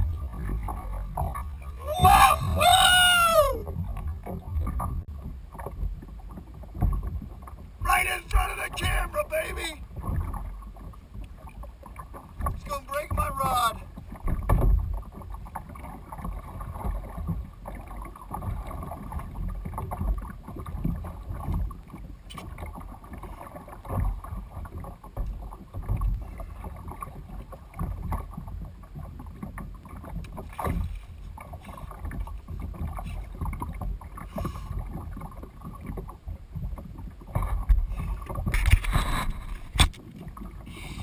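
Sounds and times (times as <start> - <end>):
water splashing against kayak hull: 0.0 - 41.0.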